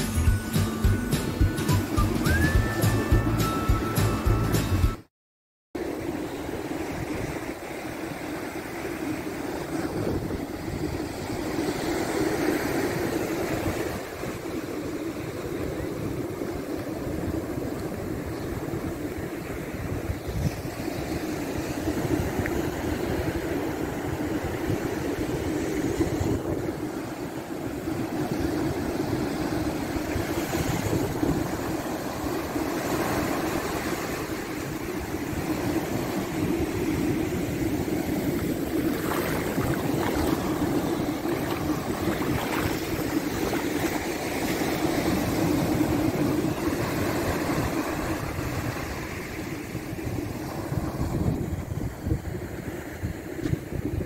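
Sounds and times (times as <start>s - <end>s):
surf washing up sand: 5.8s - 54.0s
wind rumbling on microphone: 5.8s - 54.0s.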